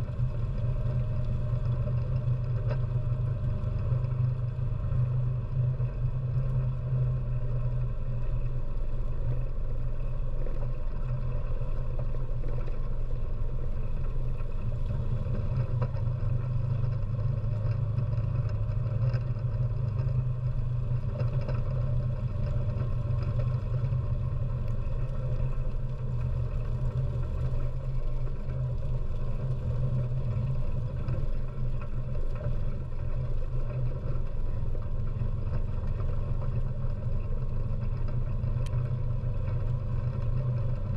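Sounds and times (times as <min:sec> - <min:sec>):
quad bike engine droning: 0:00.0 - 0:40.9.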